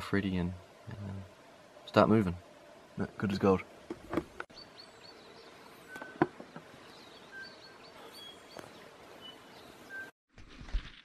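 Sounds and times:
steady background hiss: 0:00.0 - 0:10.1
birds chirping and whistling: 0:04.5 - 0:10.1.

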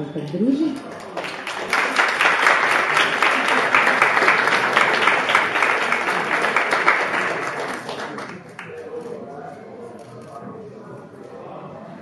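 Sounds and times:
audience applauding: 0:00.8 - 0:08.9.

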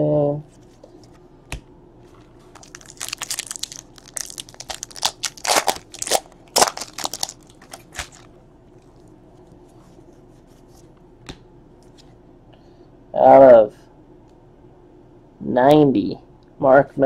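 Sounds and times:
card pack wrapper crinkling and tearing: 0:02.4 - 0:08.3.

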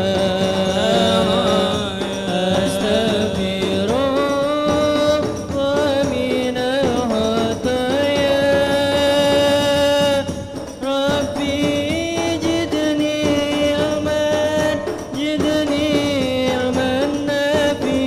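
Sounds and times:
frame drums: 0:00.0 - 0:18.0
singer chanting through microphone: 0:00.0 - 0:18.0.

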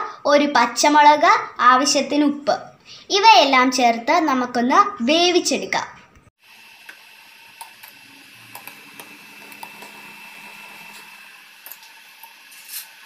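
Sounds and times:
cooktop fan hiss and whine: 0:06.4 - 0:13.0.

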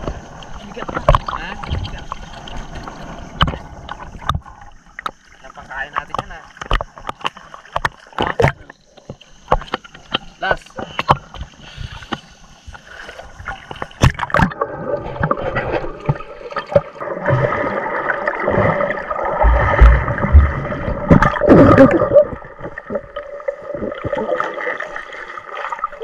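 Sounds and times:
muffled underwater rushing: 0:00.0 - 0:26.0
low thumps: 0:19.3 - 0:23.1.

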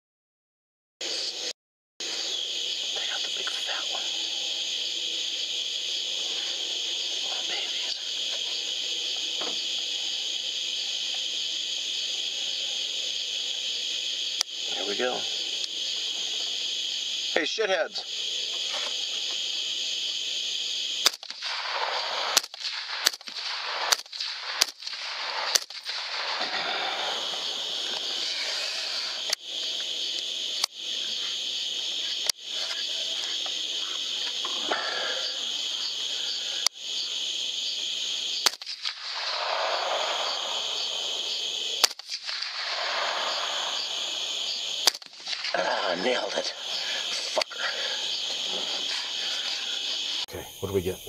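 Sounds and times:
crickets chirring: 0:01.0 - 0:51.0
suppressed rifle shots: 0:21.0 - 0:26.8, 0:38.4 - 0:41.0, 0:41.8 - 0:43.9, 0:44.8 - 0:45.4.

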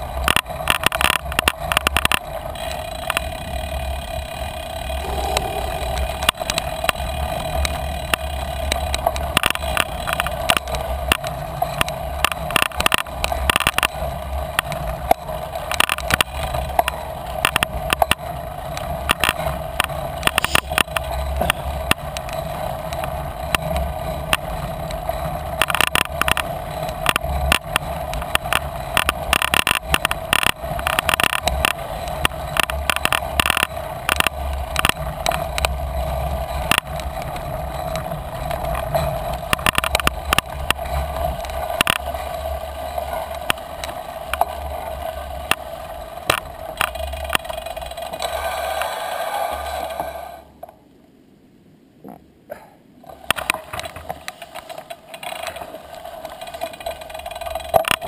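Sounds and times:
bike rattling over bumps: 0:00.0 - 0:50.0, 0:53.0 - 0:58.0
bicycle low rumble: 0:00.0 - 0:50.9, 0:52.0 - 0:58.0
steady hum: 0:02.2 - 0:11.0, 0:20.2 - 0:22.0.

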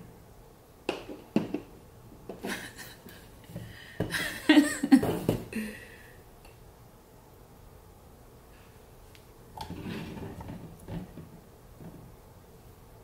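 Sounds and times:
woman laughing: 0:02.4 - 0:03.3, 0:04.1 - 0:05.9.

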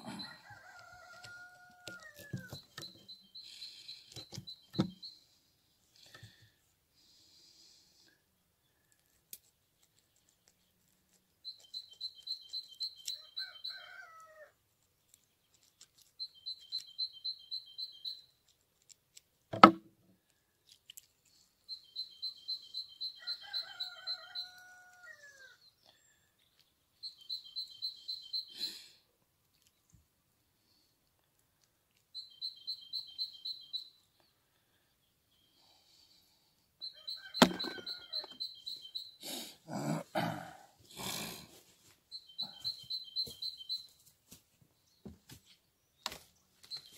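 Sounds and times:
sharp knock: 0:19.6 - 0:19.8, 0:37.4 - 0:37.8
songbird trilling: 0:36.8 - 0:39.2, 0:42.1 - 0:43.9.

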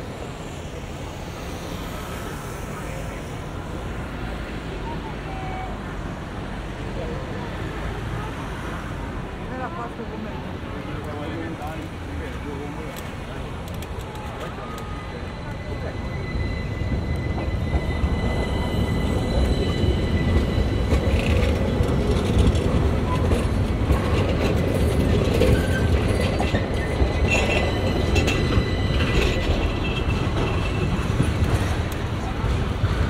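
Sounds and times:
tram wheels rumbling on rails: 0:00.0 - 0:33.0
faint wheel squeal: 0:14.2 - 0:24.2, 0:24.8 - 0:32.3.

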